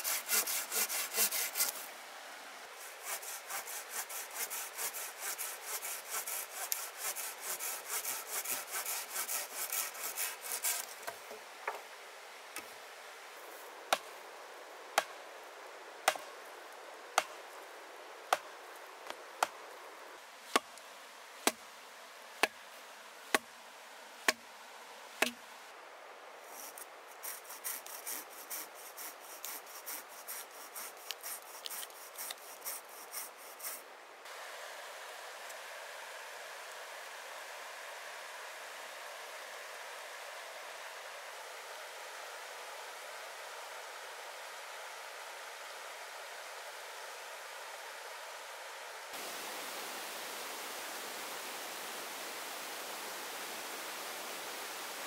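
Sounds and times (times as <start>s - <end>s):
hand saw cutting wood: 0.0s - 1.9s, 2.8s - 11.0s, 26.6s - 33.8s.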